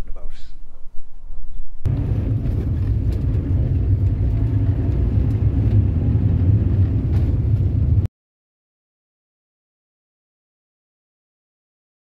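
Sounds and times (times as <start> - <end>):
engine and road rumble: 1.8 - 8.1.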